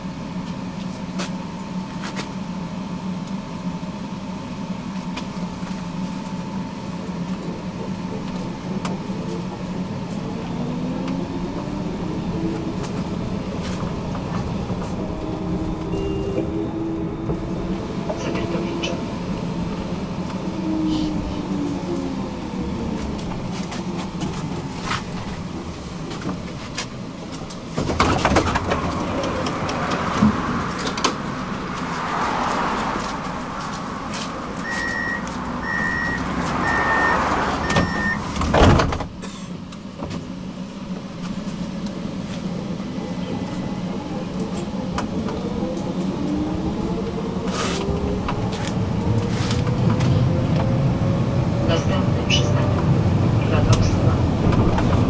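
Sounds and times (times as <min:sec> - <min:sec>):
tram motor whine: 0:00.0 - 0:55.0
tram doors shutting with thud: 0:04.2 - 0:55.0
short warning beeps: 0:15.9 - 0:16.7, 0:34.6 - 0:38.2.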